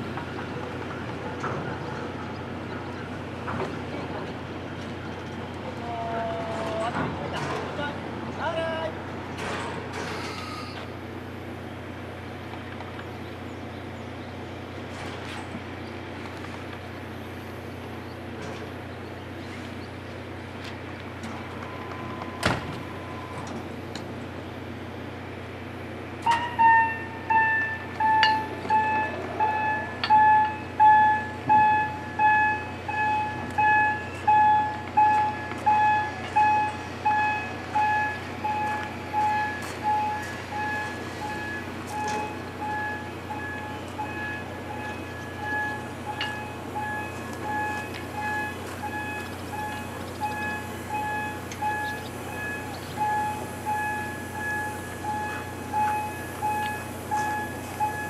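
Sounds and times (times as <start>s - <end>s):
warning alarm beeping: 26.3s - 58.0s.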